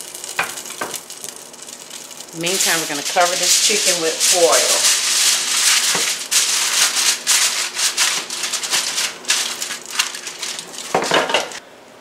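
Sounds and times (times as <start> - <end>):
aluminium foil crinkling: 0.0 - 11.6.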